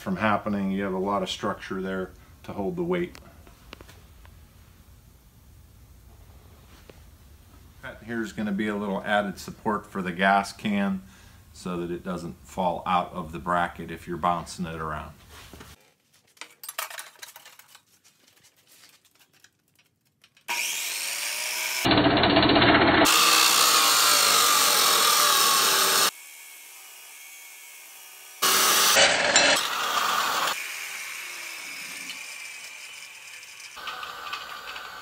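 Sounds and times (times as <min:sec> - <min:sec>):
chop saw grinding through steel: 0:20.5 - 0:35.0.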